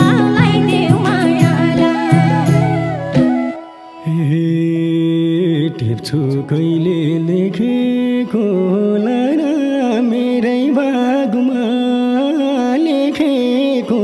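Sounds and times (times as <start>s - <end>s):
ornamented melodic line: 0.0s - 10.1s.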